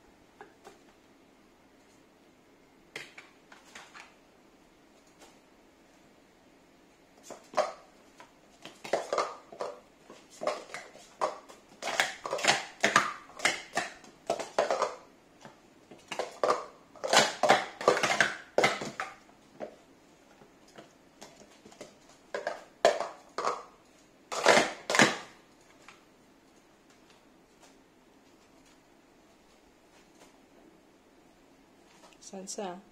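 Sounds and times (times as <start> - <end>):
plastic cups clicking and clattering: 7.2 - 19.8, 20.6 - 26.0.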